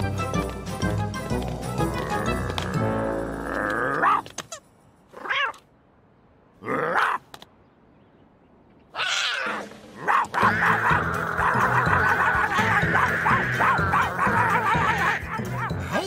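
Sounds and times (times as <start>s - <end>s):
background music: 0.0s - 4.3s, 9.6s - 16.0s
cartoon cat yowling: 9.0s - 11.9s, 12.7s - 15.0s.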